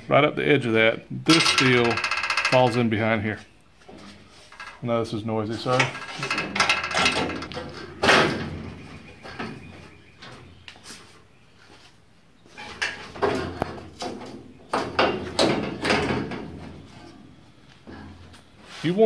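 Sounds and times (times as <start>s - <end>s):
metal panel clanking and scraping: 1.3s - 2.8s, 5.5s - 10.5s, 12.5s - 17.2s.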